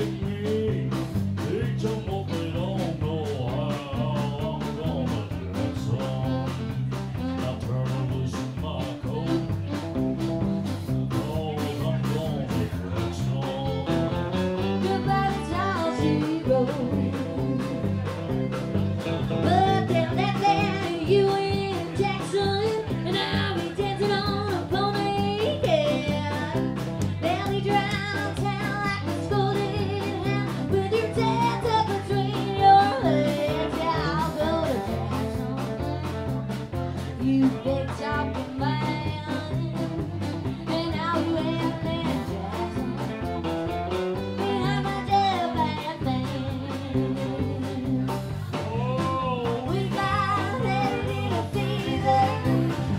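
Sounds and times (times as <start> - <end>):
live country band: 0.0 - 52.9
woman singing into microphone: 14.6 - 18.0, 19.4 - 35.9, 37.0 - 43.4, 44.3 - 48.6, 49.2 - 52.9.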